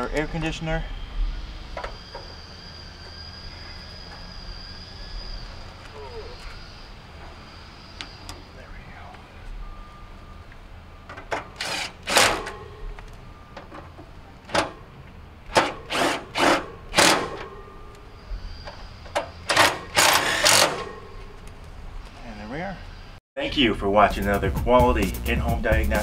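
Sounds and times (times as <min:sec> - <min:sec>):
cordless drill driving screws: 0:11.6 - 0:12.4, 0:15.5 - 0:17.3, 0:19.5 - 0:20.9.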